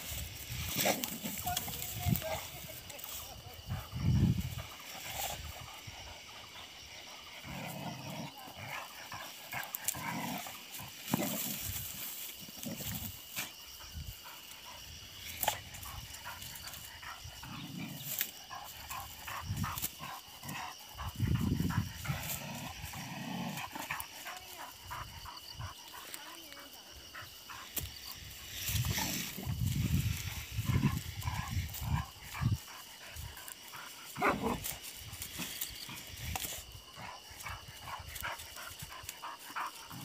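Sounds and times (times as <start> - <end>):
dog growling: 5.7 - 11.6, 16.2 - 24.1.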